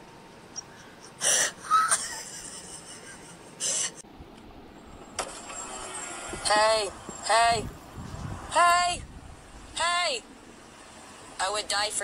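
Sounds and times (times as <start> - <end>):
breathy wheezes: 0.6 - 1.9, 3.6 - 4.0.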